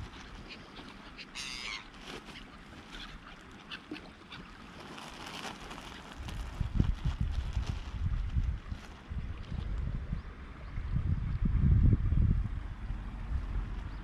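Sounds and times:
gulls calling: 0.0 - 4.8.

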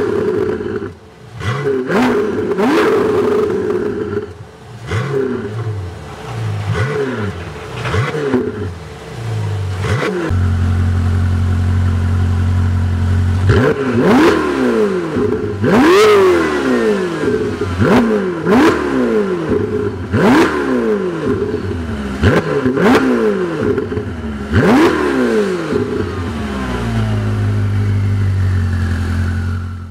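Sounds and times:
sports car engine idling: 0.0 - 14.1, 21.0 - 29.9
engine revving: 0.0 - 29.9.

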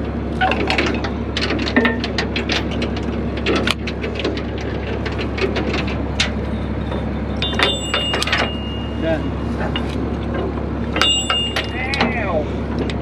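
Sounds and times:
truck engine idling: 0.0 - 13.0
metal chain and hooks clinking: 6.1 - 10.0.

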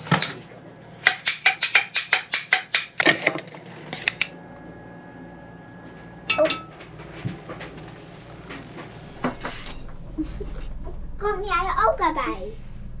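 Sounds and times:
utensils clinking on dishes: 6.3 - 6.9.

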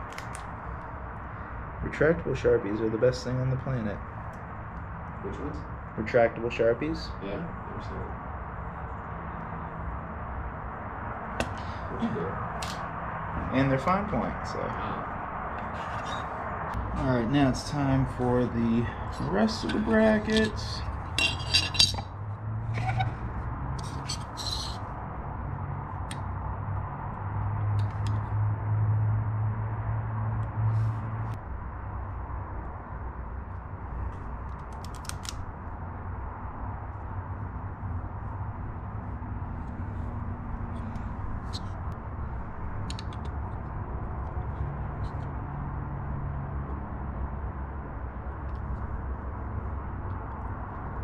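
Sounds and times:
steady low hum: 0.0 - 27.6
metal plates clinking on wood: 19.6 - 22.1, 24.0 - 24.8.

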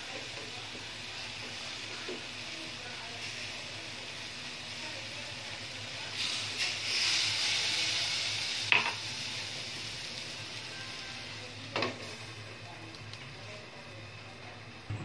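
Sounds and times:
liquid sizzling in hot pan: 0.0 - 14.9.

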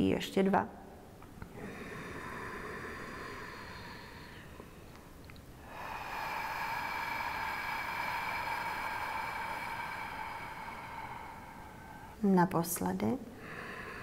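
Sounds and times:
woman breathing out: 1.4 - 12.2, 13.3 - 14.0
quiet in-breath: 1.4 - 12.3, 13.2 - 14.0.

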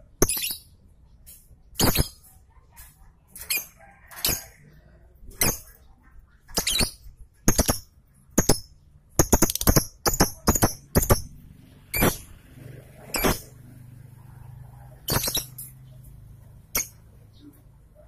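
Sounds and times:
lovebird harsh shrill chirps: 15.1 - 15.7.

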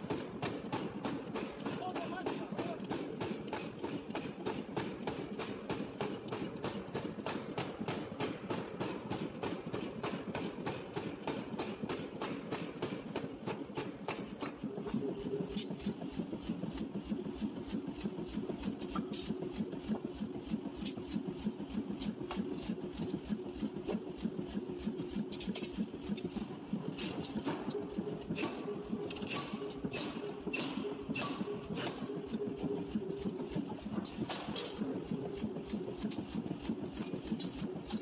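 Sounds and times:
power hammer pounding: 0.0 - 38.0
sharp metallic knocks: 27.1 - 32.1.

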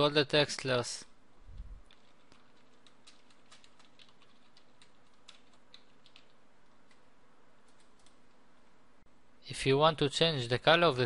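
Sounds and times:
steady low hiss: 0.0 - 11.0
typing on keyboard: 1.9 - 7.0, 7.7 - 8.2.

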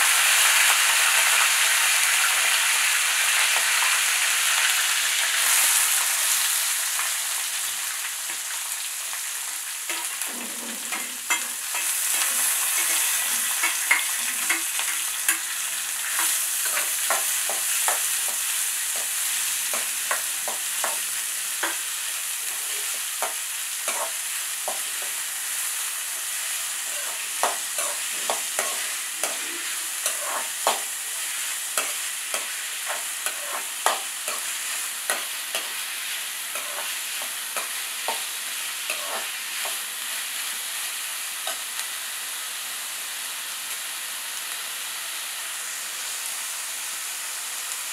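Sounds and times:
onions sizzling in hot oil: 0.0 - 47.9
metal ladle scraping pan: 9.9 - 15.4.

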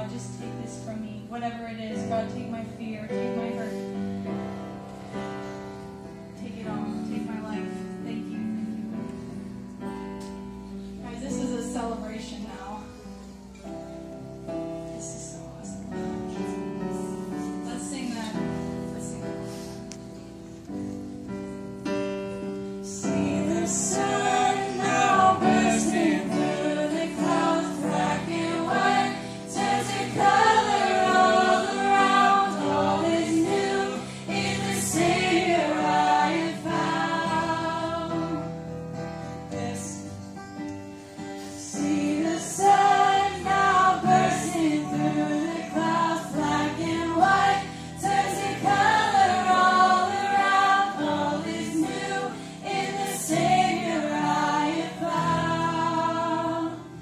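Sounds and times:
acoustic guitar: 0.0 - 57.0
backing voices singing: 22.9 - 38.5, 41.6 - 57.0.

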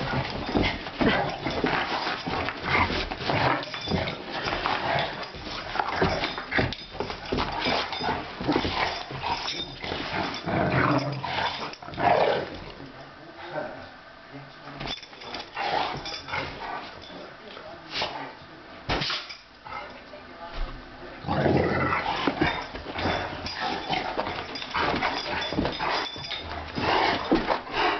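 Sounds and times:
dogs growling: 0.0 - 12.8, 15.4 - 17.0, 21.2 - 27.9
dogs scuffling: 0.0 - 12.8, 14.8 - 18.4, 21.3 - 27.9.

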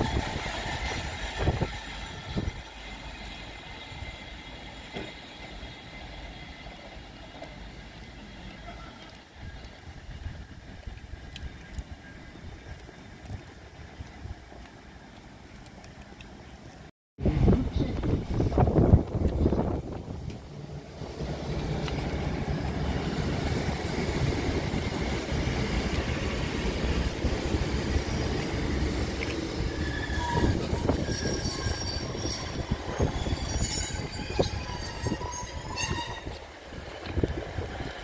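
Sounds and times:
train engine and wheels rumbling: 0.0 - 38.0
high wheel squeals: 27.7 - 36.4.

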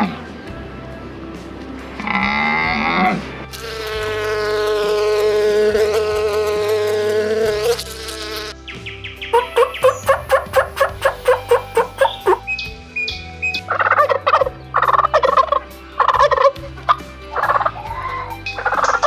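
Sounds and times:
honeybee buzzing: 3.5 - 8.8
turkey gobbling calls: 9.0 - 19.0.

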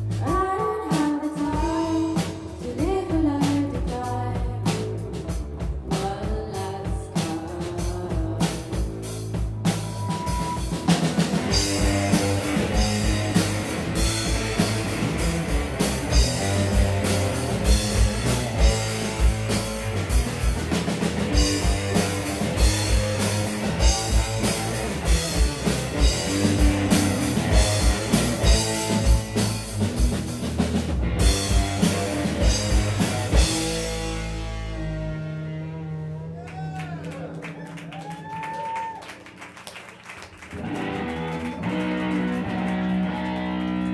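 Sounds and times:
drum kit beat: 0.0 - 35.1
distorted electric guitars: 8.2 - 36.7, 40.5 - 43.9.

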